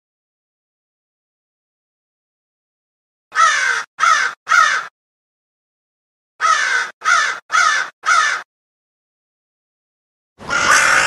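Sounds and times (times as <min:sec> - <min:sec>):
crow cawing: 0:03.3 - 0:04.9, 0:06.4 - 0:08.5, 0:10.4 - 0:11.0.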